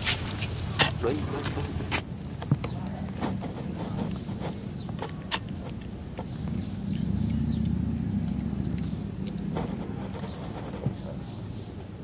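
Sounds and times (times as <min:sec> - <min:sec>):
low rumble: 0:06.4 - 0:10.1.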